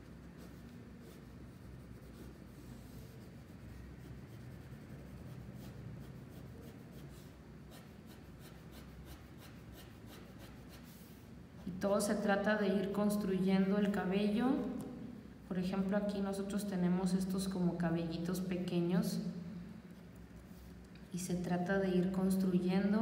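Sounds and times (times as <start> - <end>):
pencil scratching on paper: 0.0 - 11.2.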